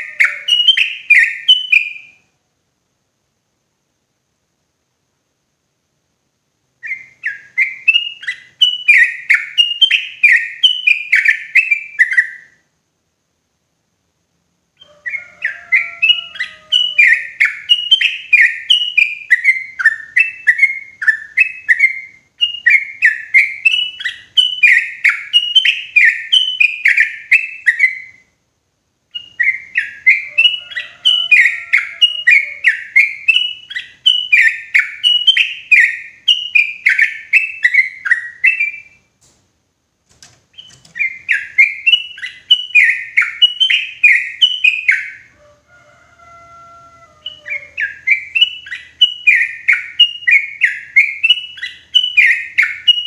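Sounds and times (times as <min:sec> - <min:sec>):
bulbul singing: 0:00.0 - 0:02.2, 0:06.8 - 0:12.5, 0:14.8 - 0:28.3, 0:29.1 - 0:39.1, 0:40.5 - 0:45.3, 0:47.2 - 0:53.0.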